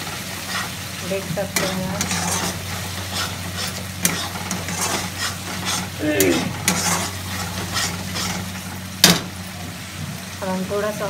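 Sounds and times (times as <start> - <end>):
paste sizzling in oil: 0.0 - 11.0
spatula scraping metal pan: 0.1 - 0.8, 1.4 - 9.2.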